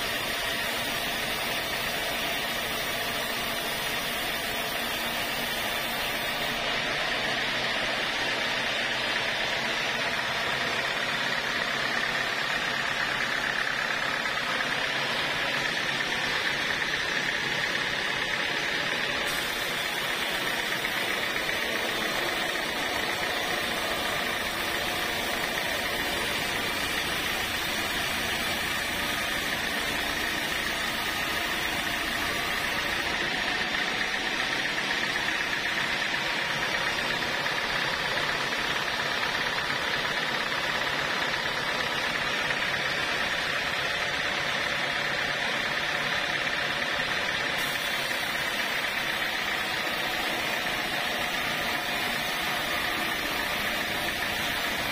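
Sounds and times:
band saw cutting wood: 0:00.0 - 0:07.3, 0:14.3 - 0:35.4, 0:47.5 - 0:54.9.

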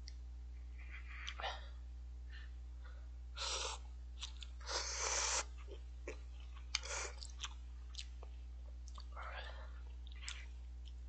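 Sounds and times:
chewing with mouth clicks: 0:04.2 - 0:04.6, 0:05.5 - 0:11.0.

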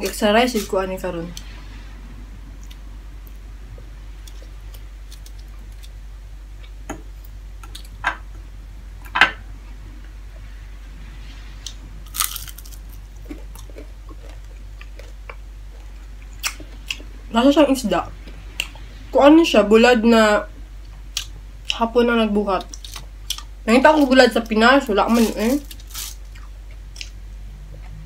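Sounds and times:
low steady hum: 0:00.0 - 0:28.0
crackly tearing: 0:12.1 - 0:13.0, 0:25.0 - 0:26.4
crunching and biting fish: 0:12.1 - 0:15.4.

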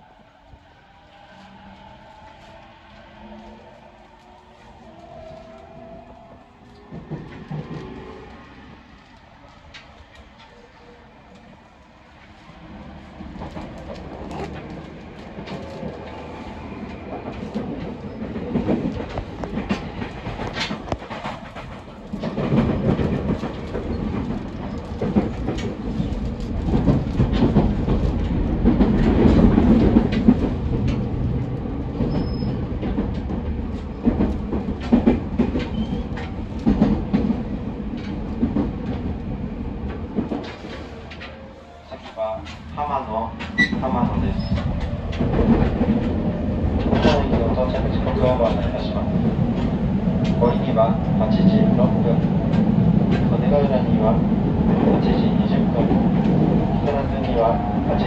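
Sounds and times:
train running rumble: 0:12.2 - 0:58.0.

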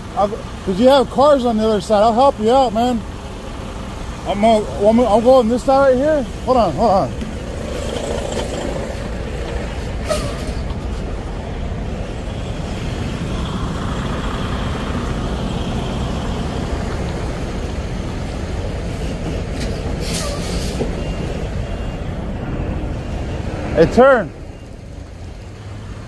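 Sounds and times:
diesel truck engines rumbling: 0:00.0 - 0:26.0
air brake hiss: 0:10.0 - 0:10.6, 0:20.0 - 0:20.8.

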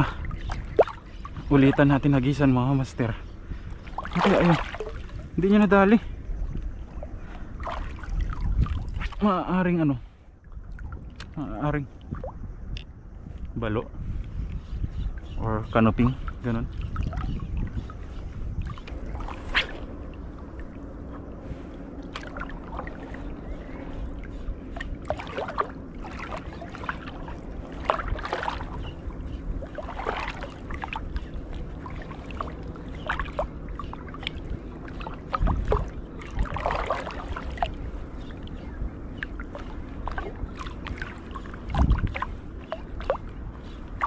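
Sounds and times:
small waves lapping: 0:00.0 - 0:12.4, 0:14.1 - 0:44.0
low rumble of wind and water: 0:00.0 - 0:44.0
dull low thumps: 0:39.8 - 0:44.0.

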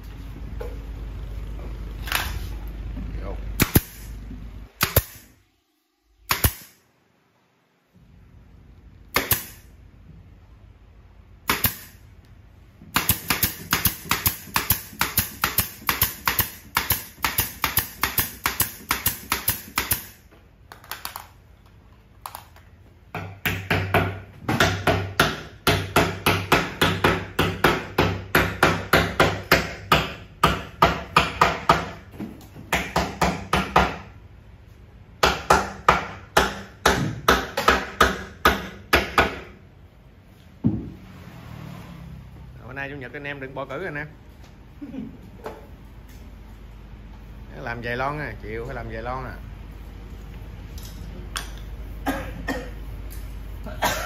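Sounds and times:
hammering nails into wood: 0:09.1 - 0:09.6, 0:11.4 - 0:12.0, 0:12.9 - 0:20.2, 0:23.1 - 0:34.1, 0:35.2 - 0:39.6.

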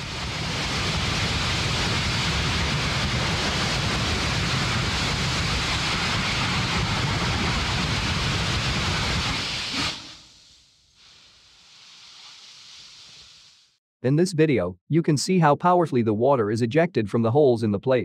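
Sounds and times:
rocket engine deep rumble with hiss: 0:00.0 - 0:13.8.

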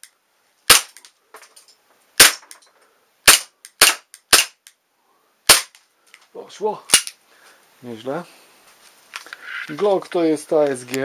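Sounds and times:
airsoft pistol shots: 0:00.7 - 0:01.0, 0:02.2 - 0:02.4, 0:03.2 - 0:04.6, 0:05.5 - 0:05.8.

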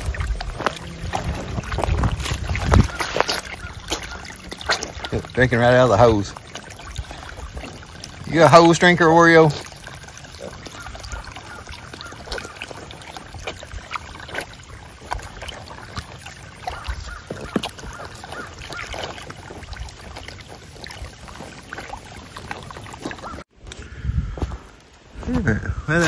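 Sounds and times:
hose water trickling: 0:00.0 - 0:23.8
pigs splashing in mud: 0:00.0 - 0:23.8.

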